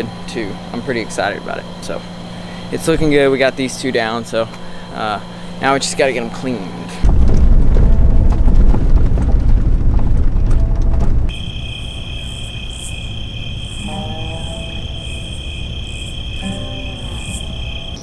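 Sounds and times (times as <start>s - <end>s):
crickets trilling: 0.0s - 8.2s, 11.3s - 18.0s
vehicle rumbling on dirt track: 7.0s - 11.6s
short pitched insect calls: 11.3s - 18.0s.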